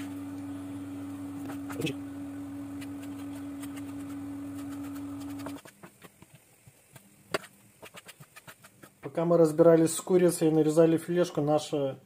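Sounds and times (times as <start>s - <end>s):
steady low hum: 0.0s - 5.6s.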